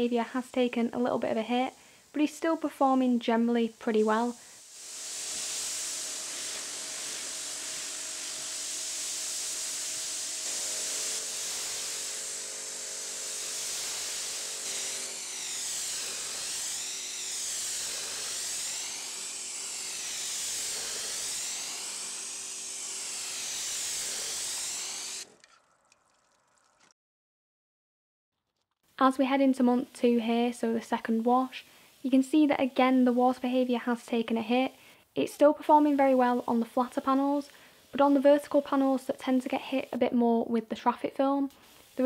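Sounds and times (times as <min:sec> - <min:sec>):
steady hum: 0:03.9 - 0:25.3
water spray hissing on a car: 0:04.6 - 0:25.3.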